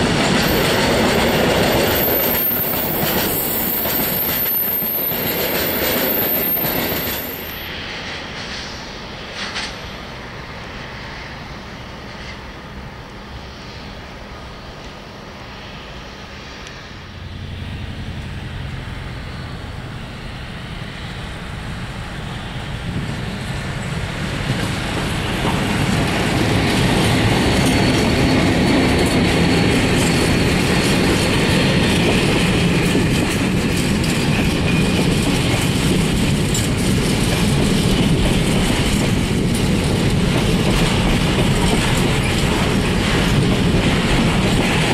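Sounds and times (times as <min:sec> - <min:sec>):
diesel freight train passing: 0:00.0 - 0:44.9
wagon wheels clattering on rails: 0:24.4 - 0:44.9.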